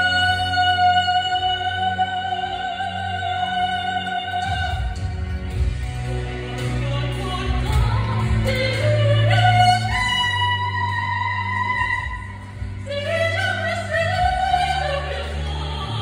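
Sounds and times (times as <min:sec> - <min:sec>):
woman singing operatically: 0:00.0 - 0:05.1, 0:06.6 - 0:16.0.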